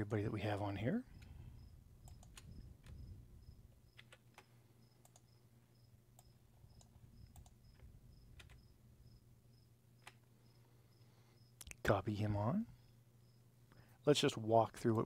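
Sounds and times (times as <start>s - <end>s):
low steady hum: 0.0s - 15.0s
computer mouse clicks: 2.0s - 3.1s, 3.9s - 5.4s, 6.2s - 8.7s, 10.0s - 10.3s.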